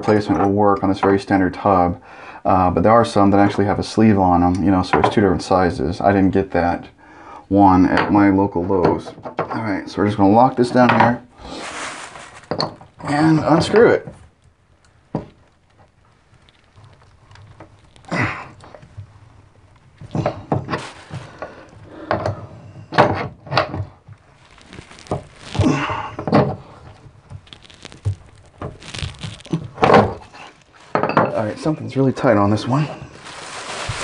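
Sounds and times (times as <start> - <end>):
metal tools knocking and scraping: 30.9 - 31.4.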